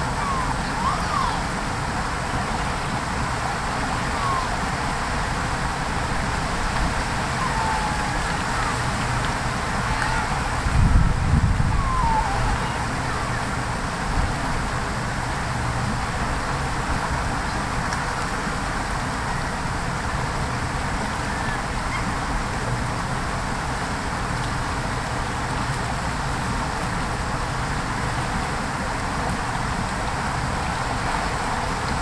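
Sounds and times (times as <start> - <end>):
creek water running over gravel: 0.0 - 32.0
low water rumble: 0.0 - 32.0.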